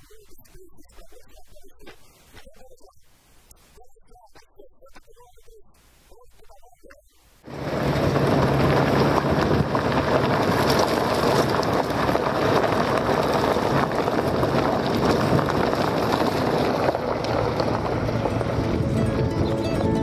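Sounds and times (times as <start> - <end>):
wind and road noise: 7.4 - 20.0
low engine hum: 7.5 - 20.0.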